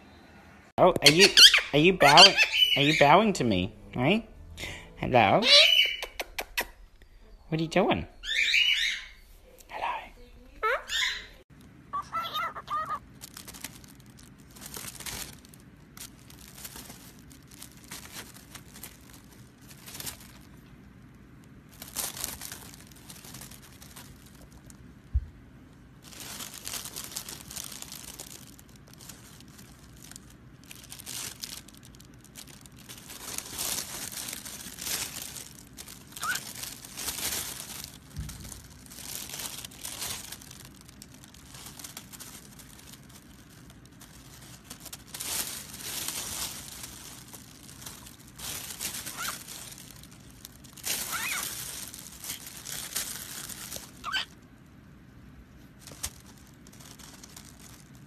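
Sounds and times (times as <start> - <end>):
plastic bag crinkling: 11.0 - 54.5, 55.6 - 58.0.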